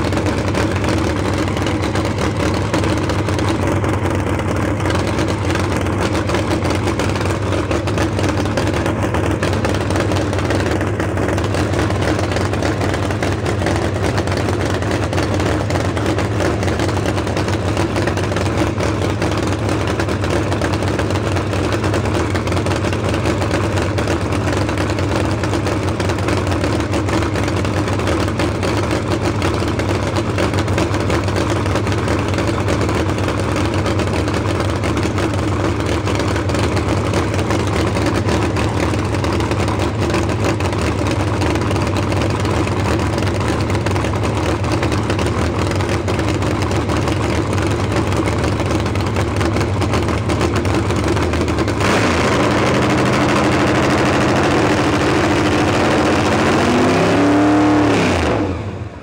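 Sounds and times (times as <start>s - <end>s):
engine idling on open headers: 0.0s - 59.0s
engine revving: 51.6s - 58.8s.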